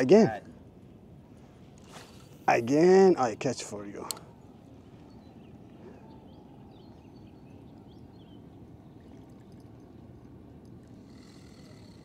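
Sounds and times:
flowing water: 0:08.4 - 0:11.1.

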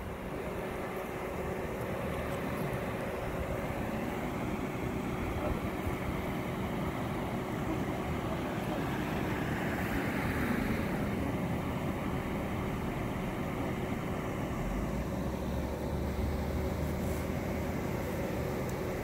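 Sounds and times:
street traffic: 0:00.0 - 0:19.0.

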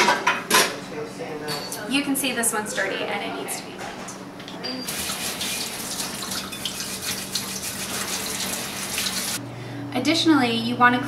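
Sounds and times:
faucet water running into sink: 0:04.9 - 0:09.4.

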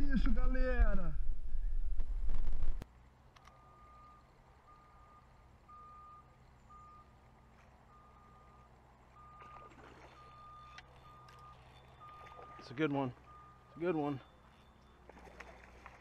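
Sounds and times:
faint high electronic beeps: 0:03.5 - 0:07.2, 0:07.9 - 0:15.2.

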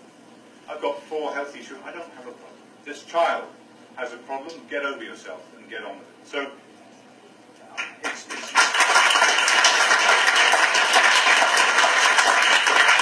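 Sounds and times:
audience clapping: 0:07.8 - 0:13.0.

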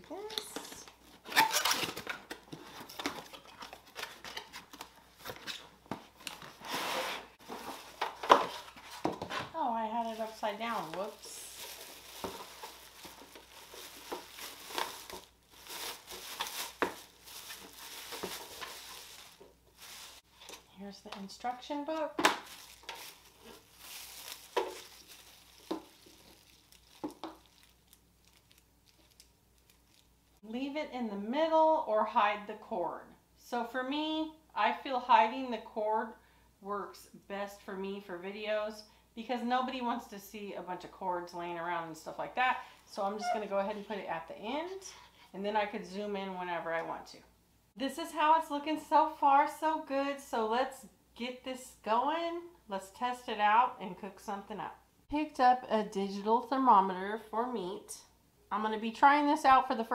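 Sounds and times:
plastic wrap rustling: 0:00.1 - 0:20.6, 0:22.2 - 0:30.1.

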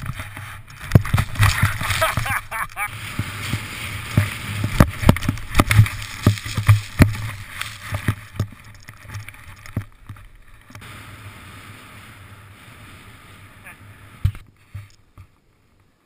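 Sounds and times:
camera knocking and rattling: 0:00.0 - 0:02.9, 0:03.5 - 0:10.8
snow hiss: 0:00.0 - 0:09.6, 0:10.2 - 0:16.0.

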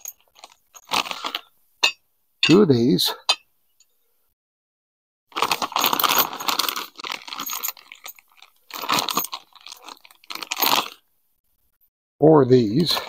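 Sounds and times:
plastic bag crinkling: 0:00.0 - 0:01.4, 0:05.3 - 0:11.0
metal hardware clinking: 0:00.0 - 0:02.6.

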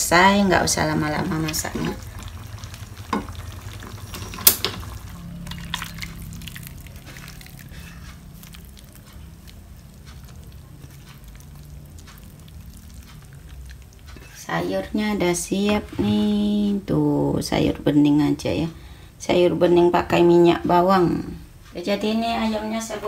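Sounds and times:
soup crackling in pot: 0:00.0 - 0:15.7
low steady hum: 0:00.0 - 0:23.0.

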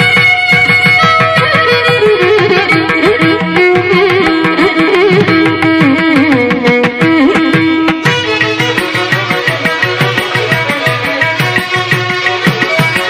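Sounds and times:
steady drum beat: 0:00.0 - 0:04.5, 0:07.1 - 0:13.0
instrumental melody with sliding notes: 0:00.0 - 0:13.0.

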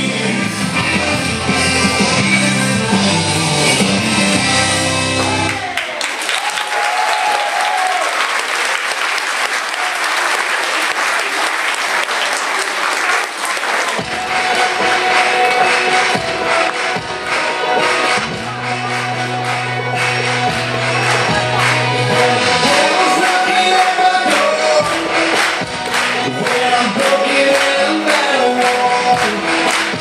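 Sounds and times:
line-dance music with guitar: 0:00.0 - 0:05.6, 0:14.0 - 0:30.0
crowd applauding: 0:05.0 - 0:30.0.

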